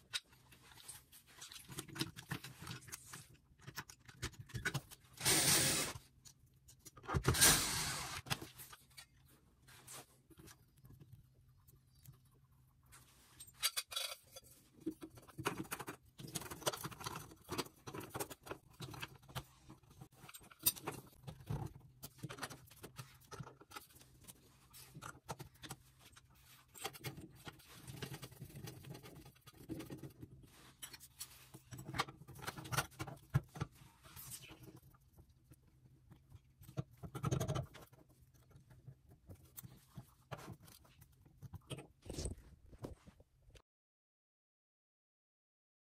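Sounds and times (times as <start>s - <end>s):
metal parts clicking and scraping: 13.3s - 14.6s.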